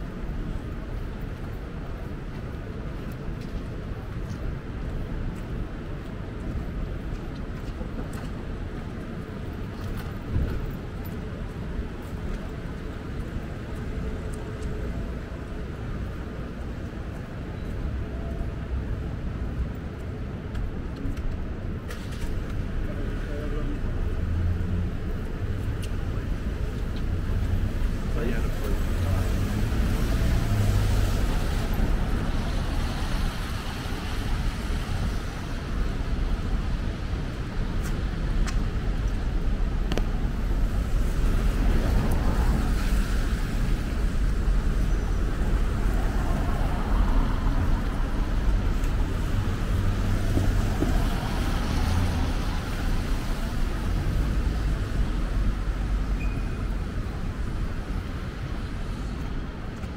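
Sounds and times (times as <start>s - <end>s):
low traffic rumble: 0.0s - 59.9s
cars passing on wet pavement: 20.6s - 59.9s.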